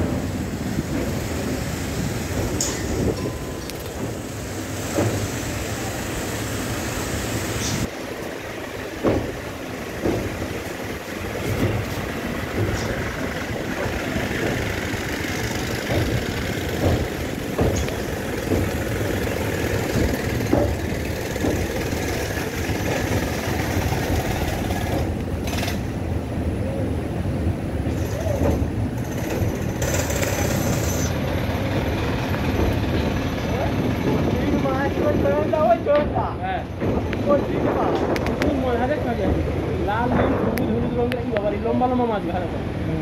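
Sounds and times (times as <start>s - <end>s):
train rumble: 0.0s - 43.0s
wheels knocking on track: 8.2s - 26.0s, 27.8s - 41.6s.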